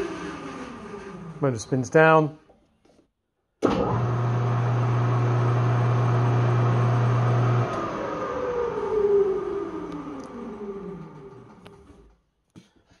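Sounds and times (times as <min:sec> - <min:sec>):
motor spinning down whine: 0:03.7 - 0:12.0
lathe motor humming: 0:03.8 - 0:11.8.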